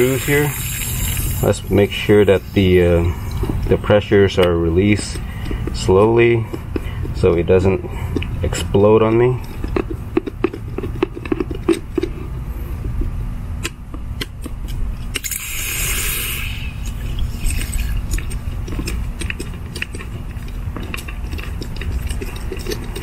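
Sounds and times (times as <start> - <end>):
water pressure hissing: 0.0 - 3.5, 15.2 - 17.9.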